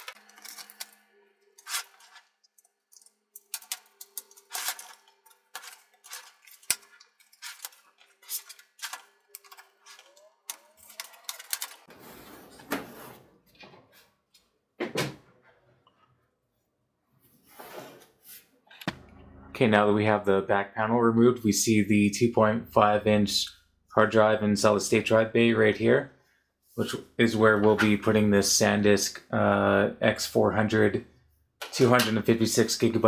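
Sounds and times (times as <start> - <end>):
plastic cover scraping and rustling: 0.0 - 13.4.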